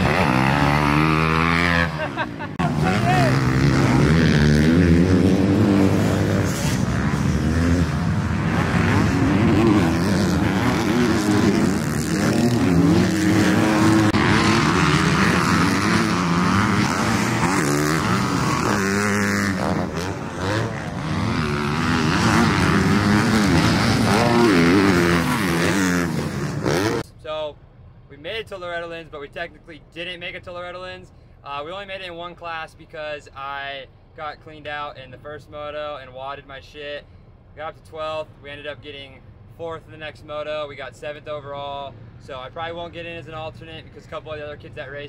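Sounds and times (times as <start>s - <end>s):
motocross bike engine revving: 0.0s - 27.0s.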